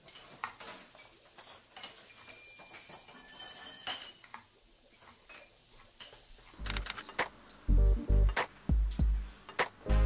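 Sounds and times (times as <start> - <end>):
kitchenware clinking and tapping: 0.0 - 6.3.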